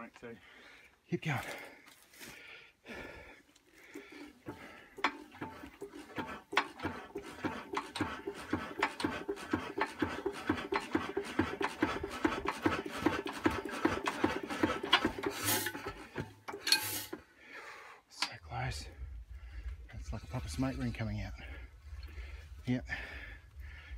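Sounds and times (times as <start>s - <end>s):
engine hand crank clicks: 5.0s - 17.2s.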